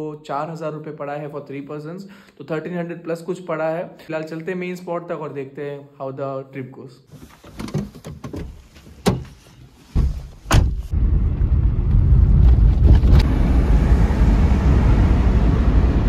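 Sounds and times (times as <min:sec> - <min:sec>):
car door slamming: 0:07.6 - 0:09.4, 0:10.0 - 0:10.9
car door latch clicks: 0:10.4 - 0:10.9
car driving rumble from inside: 0:10.6 - 0:16.0.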